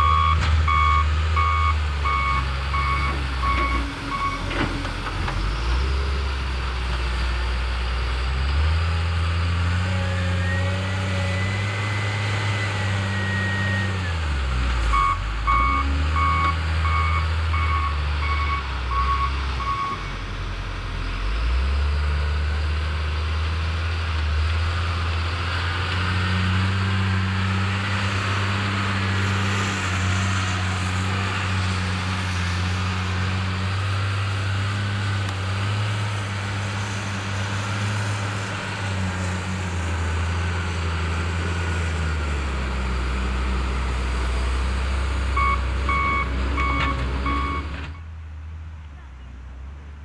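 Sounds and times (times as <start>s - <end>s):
diesel engine running: 0.0s - 50.0s.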